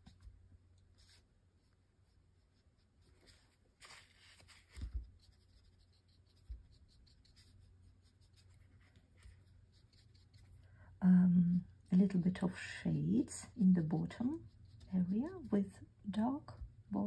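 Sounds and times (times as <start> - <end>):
brush scratching on paper: 0.9 - 10.6, 11.5 - 15.8.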